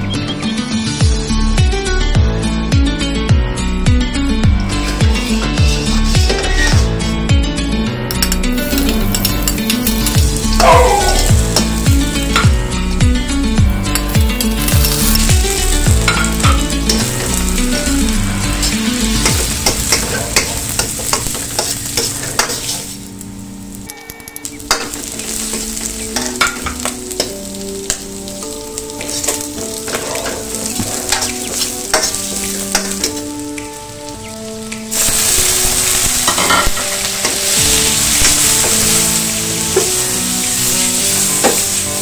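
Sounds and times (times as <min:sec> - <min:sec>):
vegetables sizzling in a wok: 0:04.3 - 0:07.3, 0:08.1 - 0:42.0
metal ladle scraping a wok: 0:04.8 - 0:07.1, 0:18.6 - 0:23.0, 0:29.0 - 0:33.1.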